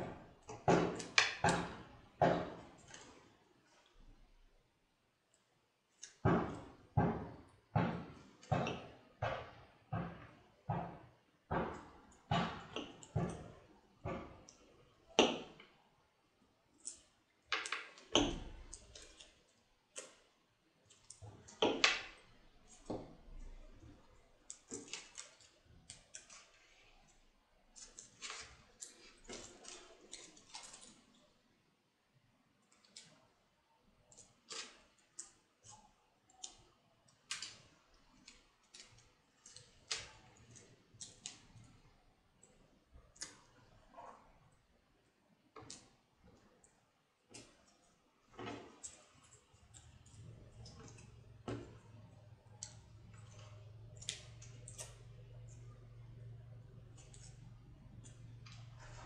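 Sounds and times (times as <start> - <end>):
paper strips clicking and rustling: 24.4 - 31.3.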